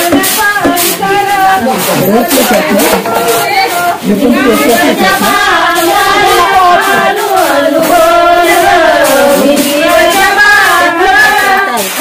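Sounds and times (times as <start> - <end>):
women singing together: 0.0 - 12.0.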